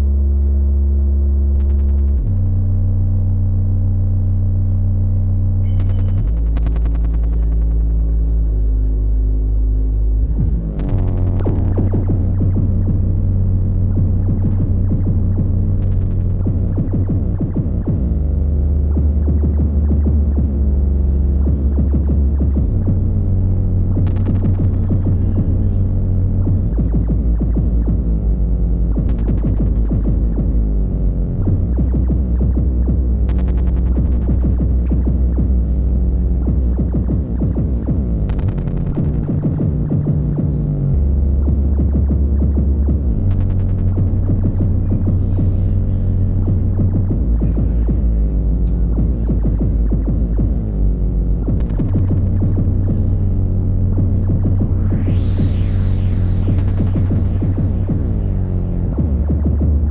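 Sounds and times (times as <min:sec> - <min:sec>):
deep throbbing bass: 0:00.0 - 0:59.9
heavy low drone: 0:00.0 - 0:59.9
falling pitch sweeps: 0:54.0 - 0:59.0.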